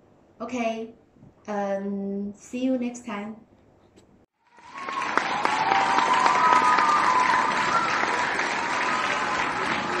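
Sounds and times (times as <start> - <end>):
loud applause: 4.4 - 10.0.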